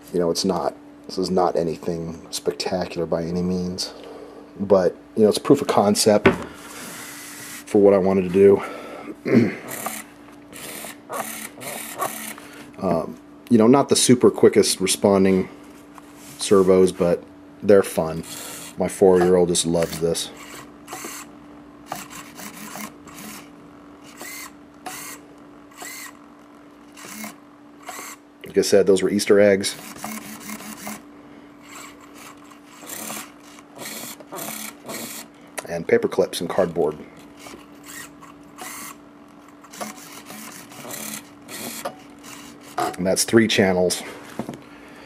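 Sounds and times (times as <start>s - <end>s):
faint steady hum: 0.0s - 45.0s
servos whirring: 9.7s - 12.4s, 18.2s - 28.2s, 29.6s - 35.3s, 37.4s - 43.0s.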